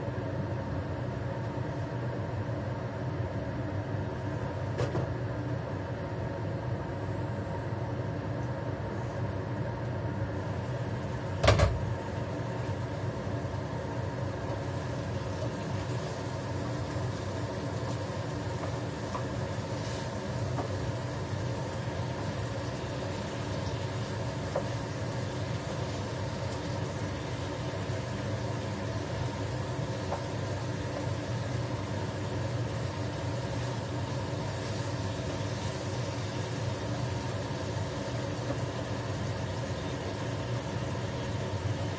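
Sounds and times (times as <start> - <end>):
mechanical hum: 0.0 - 41.9
tofu frying in a pan: 10.3 - 41.9.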